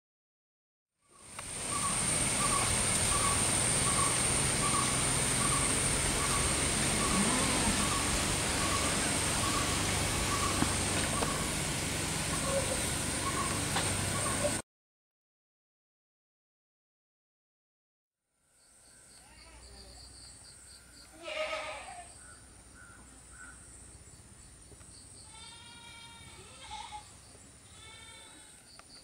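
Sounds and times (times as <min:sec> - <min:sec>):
steady hiss: 0:01.1 - 0:14.6.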